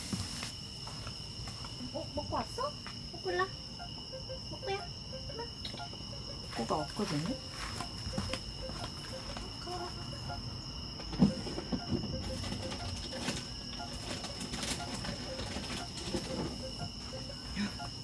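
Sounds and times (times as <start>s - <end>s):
night insects trilling: 0.0s - 18.0s
faint low repeating call: 3.7s - 18.0s.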